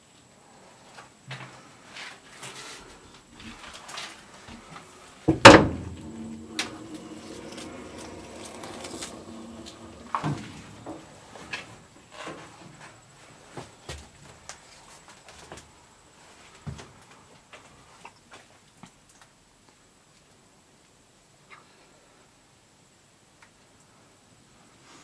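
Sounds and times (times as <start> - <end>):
footsteps: 3.4 - 11.8
metal door clank with ringing: 5.3 - 10.8.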